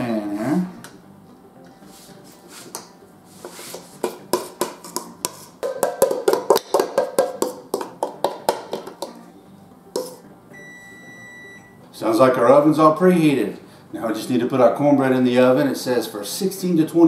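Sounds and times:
metal spoon scraping metal bowl: 10.0 - 10.2
oven beep: 10.5 - 11.8.

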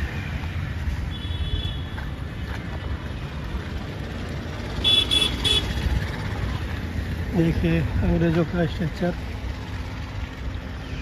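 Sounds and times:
road traffic rumble: 0.0 - 11.0
vehicle horn honk: 4.8 - 5.8.

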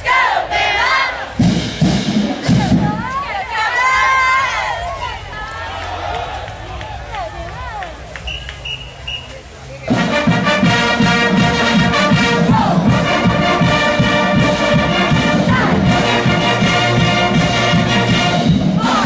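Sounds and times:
steady drumming: 0.0 - 5.4, 9.9 - 19.0
marching band brass chords: 0.0 - 19.0.

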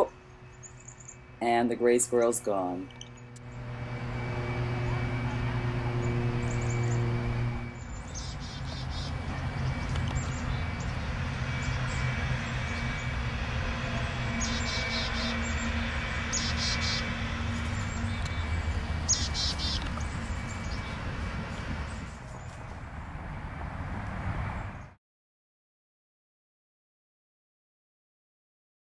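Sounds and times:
distant traffic: 0.0 - 25.0
low engine hum: 0.0 - 25.0
small bird chirping: 4.5 - 11.0, 14.3 - 21.0.

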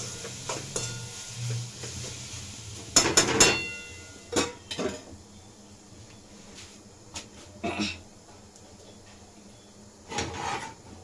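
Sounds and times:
steel utensils clinking against pot: 3.0 - 5.0.

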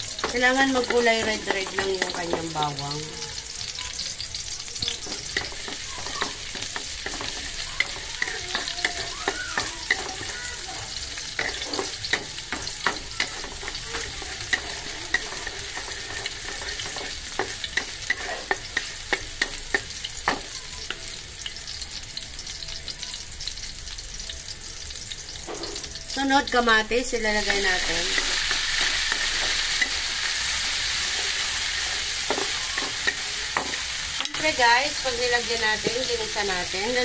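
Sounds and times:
garlic and onion sizzling in oil: 0.0 - 37.0
wooden spatula scraping and tapping wok: 0.1 - 2.8, 4.8 - 20.6, 27.4 - 36.4.

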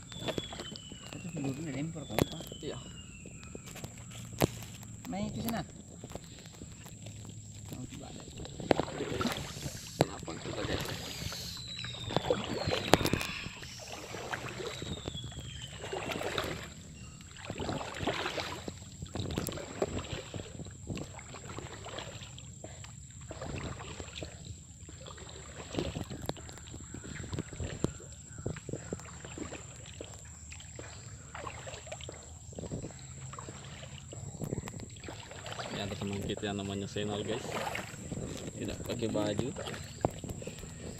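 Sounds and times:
paddle strokes splashing in water: 0.0 - 40.9.

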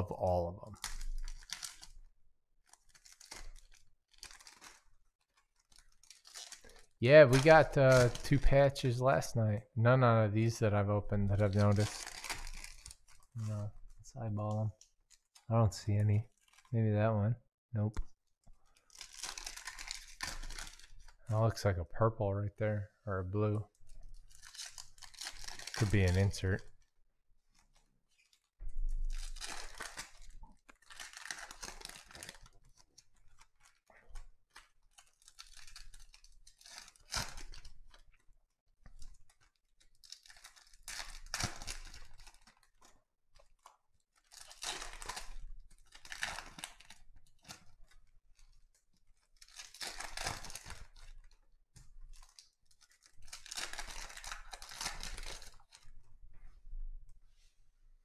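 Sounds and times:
wrappers tearing and crinkling: 0.2 - 9.0, 11.1 - 15.5, 16.3 - 16.8, 18.6 - 21.3, 23.8 - 26.9, 27.5 - 38.2, 38.9 - 56.0
cards being handled: 0.7 - 2.0, 2.7 - 8.5, 24.3 - 26.6, 27.5 - 37.8, 49.2 - 55.9.

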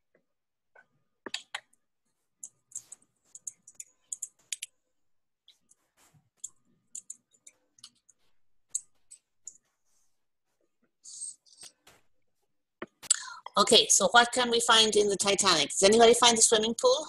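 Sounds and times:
computer keyboard typing: 2.4 - 4.7, 6.4 - 9.6.

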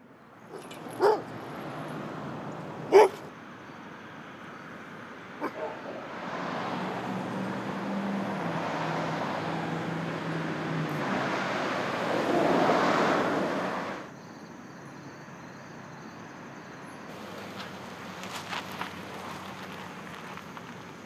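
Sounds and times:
steady outdoor hum: 0.0 - 12.1, 13.3 - 21.0
vehicle passing: 0.5 - 3.3, 5.2 - 14.1.

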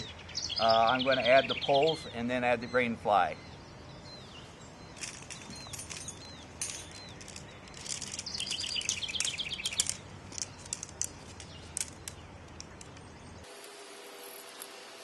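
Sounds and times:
bird trilling: 0.0 - 10.8
bird chirps: 0.0 - 13.5
tent pole sections clicking: 5.0 - 13.1.

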